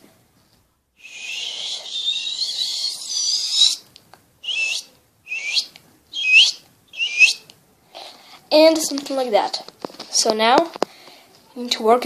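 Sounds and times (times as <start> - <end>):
person whistling like a bird: 1.0 - 3.8, 4.4 - 7.4.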